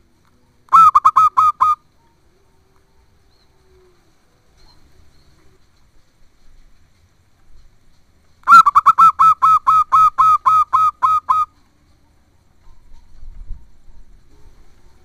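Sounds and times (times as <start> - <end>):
dove cooing: 0.7 - 5.6, 8.5 - 11.5.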